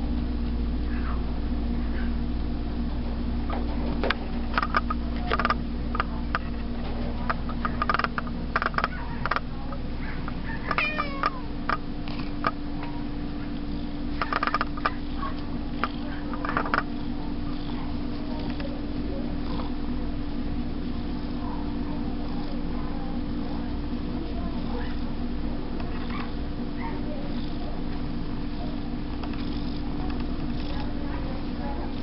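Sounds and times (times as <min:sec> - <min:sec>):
steady hum: 0:00.0 - 0:32.0
clicks and taps: 0:03.5 - 0:06.5, 0:07.3 - 0:09.4, 0:14.2 - 0:15.0
cat meowing: 0:10.5 - 0:11.5.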